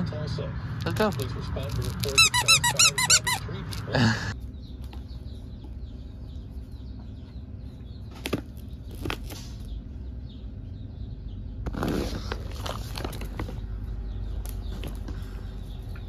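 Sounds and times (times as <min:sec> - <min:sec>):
squeaky toy squeaks: 0:01.8 - 0:03.8.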